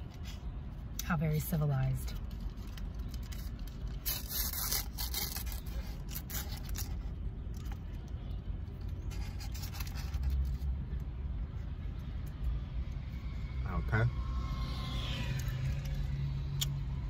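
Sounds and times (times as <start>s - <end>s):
low steady rumble: 0.0s - 17.0s
paper wrapper rustling: 2.2s - 7.6s.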